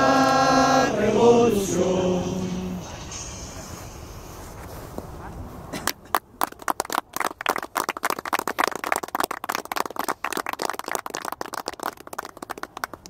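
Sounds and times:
small group clapping: 0:05.8 - 0:13.0.

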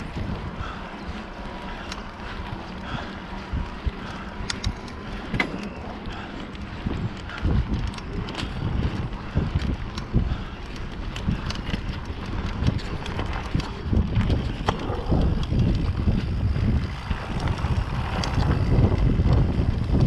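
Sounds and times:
bike rattling and clicking: 0:00.0 - 0:20.0
wind buffeting microphone: 0:00.0 - 0:20.0.

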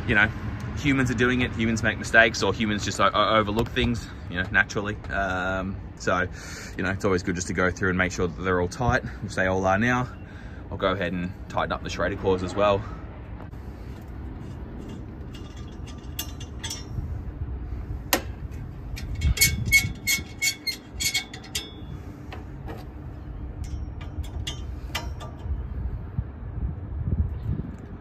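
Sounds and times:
steady low rumble: 0:00.0 - 0:28.0
metallic clicks of tool on valve caps: 0:14.8 - 0:17.0, 0:19.0 - 0:22.4, 0:23.6 - 0:25.6.

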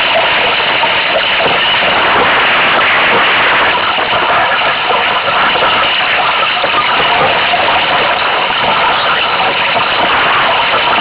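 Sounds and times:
strong wind rushing: 0:00.0 - 0:11.0
water streaming past hull: 0:00.0 - 0:11.0.

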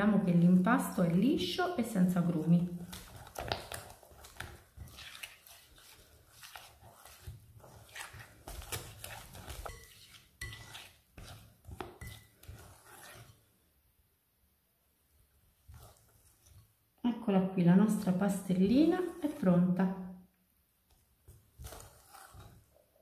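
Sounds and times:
whisk clinking against glass bowl: 0:08.0 - 0:13.2.

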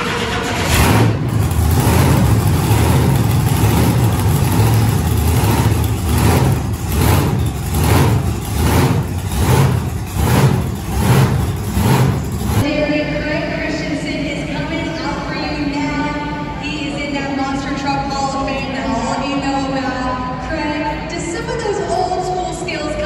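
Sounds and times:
monster truck engine revving: 0:00.0 - 0:12.7.

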